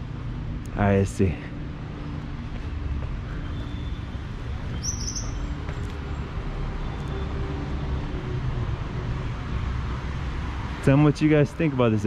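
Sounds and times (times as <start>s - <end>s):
low rumble of traffic: 0.0s - 12.0s
high bird chirp: 3.4s - 5.6s.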